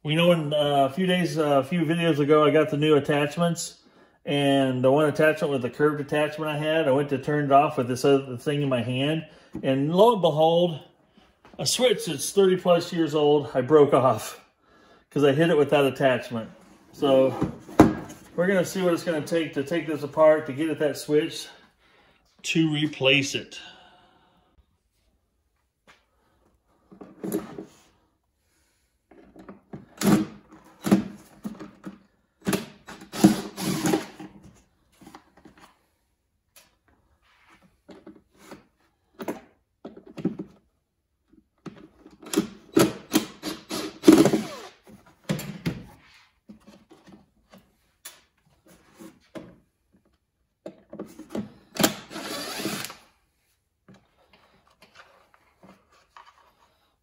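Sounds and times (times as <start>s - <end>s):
cordless drill bursts: 32.9s - 34.2s, 43.1s - 44.8s, 51.8s - 53.1s.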